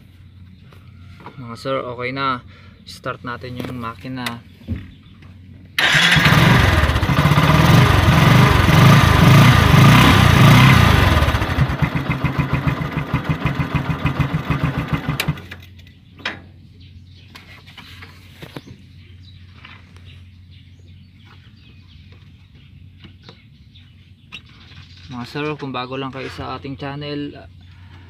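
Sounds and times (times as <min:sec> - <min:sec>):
motorcycle engine running: 0:05.8 - 0:15.6.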